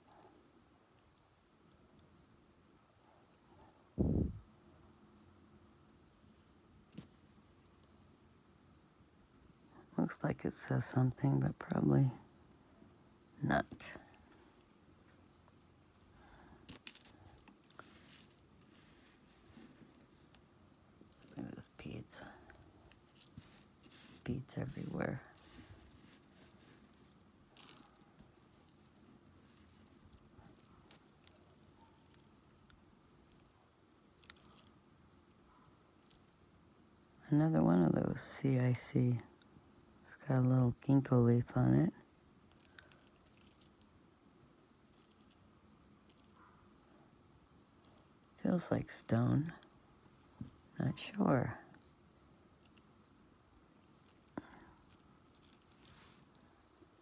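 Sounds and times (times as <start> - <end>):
bracelet clicks and rustles: 6.6 - 8.1, 13.5 - 33.5, 34.1 - 36.6, 42.5 - 44.0, 44.7 - 46.9, 47.5 - 50.8, 51.7 - 52.9, 53.8 - 57.0.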